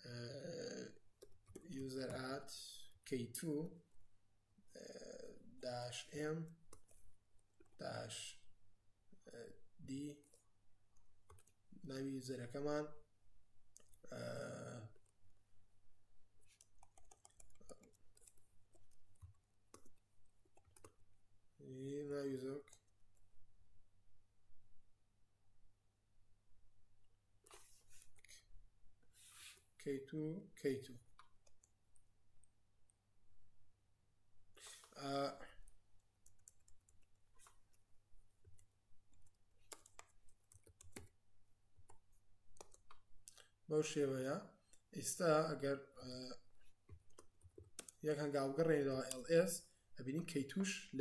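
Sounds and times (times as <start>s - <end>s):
keyboard keys clicking: 16.5s - 20.9s.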